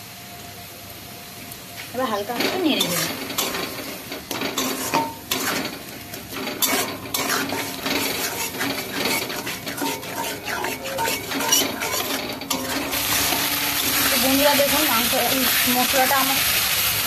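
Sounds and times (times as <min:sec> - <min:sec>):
food frying in oil: 0:00.0 - 0:17.0
utensil scraping metal pan: 0:02.3 - 0:16.2.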